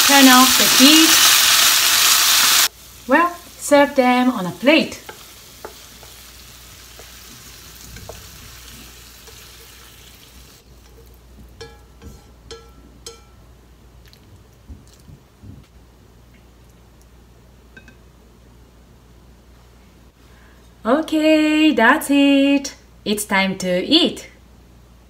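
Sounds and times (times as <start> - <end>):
food sizzling in frying pan: 0.0 - 13.2.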